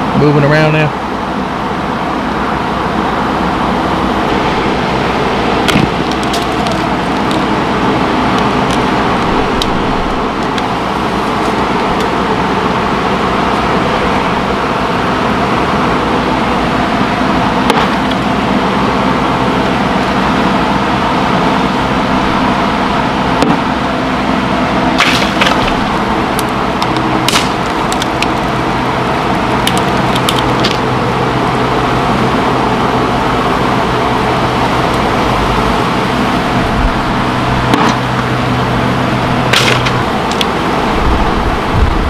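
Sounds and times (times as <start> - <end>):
steady droning hum: 0.0 - 42.0
wood cracking and snapping: 5.6 - 7.5, 25.0 - 28.6, 29.6 - 31.0, 39.5 - 40.6.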